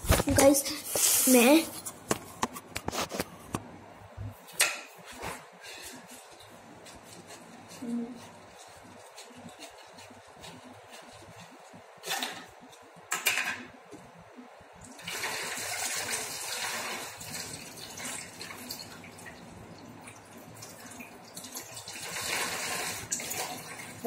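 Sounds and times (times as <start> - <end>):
water pouring into toy water gun: 14.9 - 19.0, 20.6 - 24.0.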